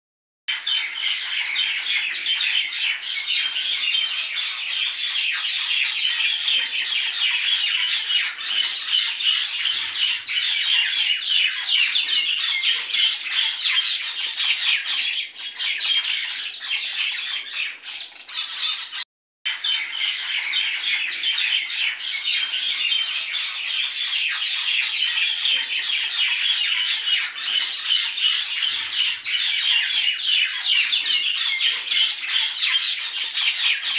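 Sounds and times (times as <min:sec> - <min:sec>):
many birds chirping and squawking: 0:00.5 - 0:33.9.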